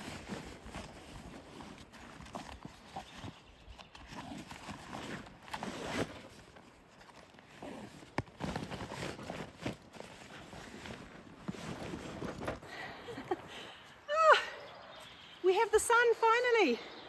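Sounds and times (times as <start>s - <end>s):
backpacks rustling and bumping: 0.0s - 13.4s.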